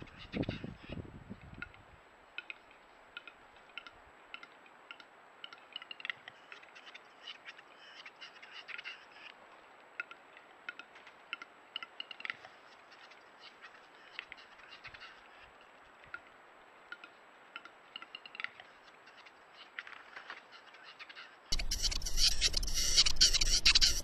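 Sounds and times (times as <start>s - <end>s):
bird clicking calls: 3.2s - 8.9s, 10.0s - 12.4s, 16.9s - 19.9s, 21.5s - 24.0s.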